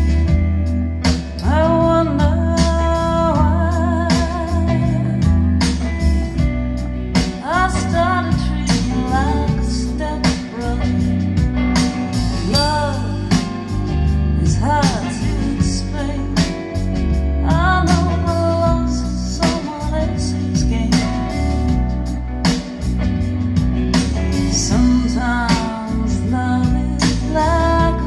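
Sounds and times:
bass line: 0.0 - 28.0
drums: 0.0 - 28.0
guitar: 0.0 - 28.0
singer with vibrato: 12.4 - 13.5.

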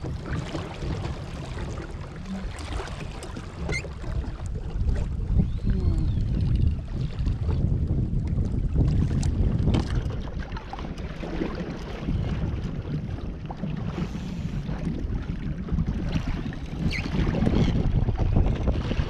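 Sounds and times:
small water splashes: 0.0 - 7.6
water lapping against kayak hull: 0.0 - 19.0
wind buffeting microphone: 0.0 - 19.0.

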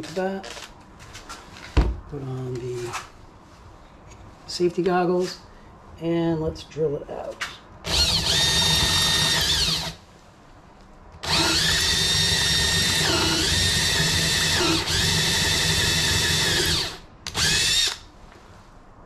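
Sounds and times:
cordless drill motor whining: 7.9 - 10.0, 11.2 - 18.0.

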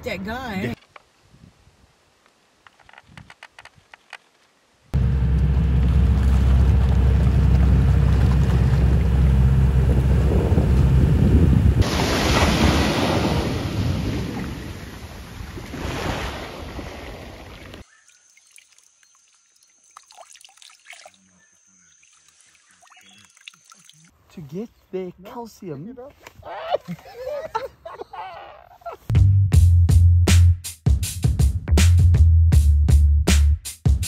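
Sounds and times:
loud low rumble: 5.0 - 12.0
surf and splashing water: 5.8 - 18.9.

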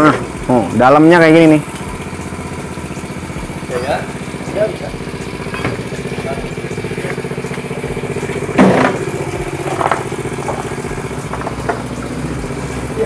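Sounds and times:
small engine idling: 0.0 - 13.0
sharp knocks: 8.5 - 11.9.

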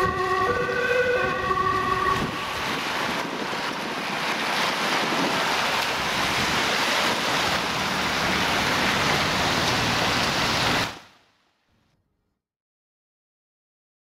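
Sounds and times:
car tyres hissing on wet asphalt: 2.4 - 11.2.

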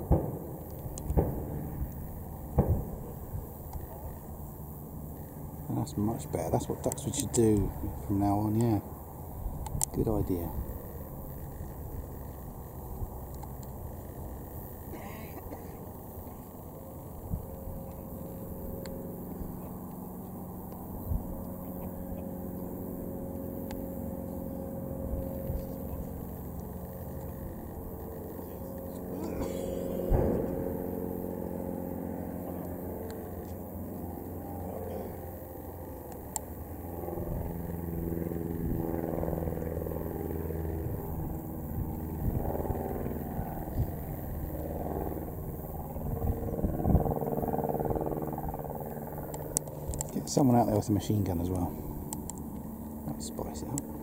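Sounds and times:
plane piston engine droning: 0.0 - 54.0
sharp crack: 29.8 - 30.8
low thuds: 30.0 - 30.7.

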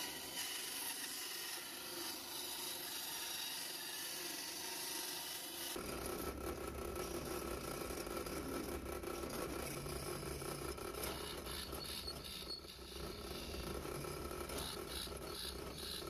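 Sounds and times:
drill press boring into wood: 9.7 - 16.0.

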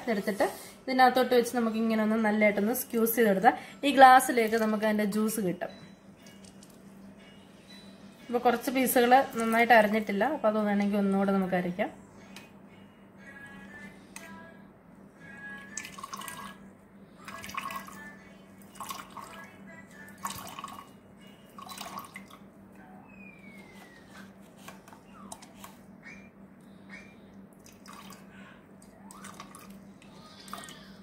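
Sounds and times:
juice dripping into steel cup: 15.7 - 16.6.

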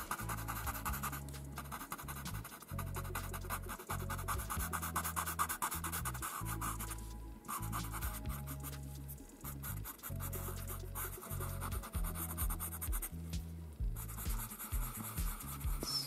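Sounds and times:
blending stump scratching paper: 0.0 - 8.8, 14.1 - 16.0
soft background music: 0.0 - 16.0.

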